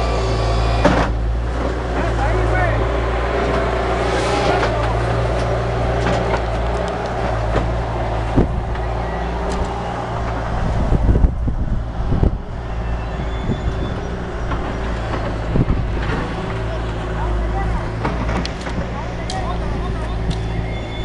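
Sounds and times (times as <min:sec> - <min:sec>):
loader engine running: 0:00.0 - 0:21.0
knocks and clunks: 0:00.8 - 0:02.2, 0:04.4 - 0:10.5, 0:13.8 - 0:19.5.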